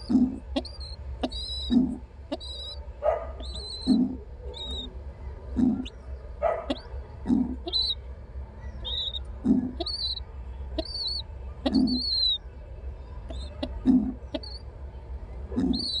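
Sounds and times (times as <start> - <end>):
pigeon cooing: 0.0 - 4.9, 5.5 - 8.0, 8.8 - 10.2, 10.8 - 12.4, 13.3 - 14.6, 15.5 - 16.0
pigeon squab squeaking: 0.0 - 5.0, 5.6 - 8.0, 8.7 - 12.4, 13.3 - 14.6, 15.6 - 16.0.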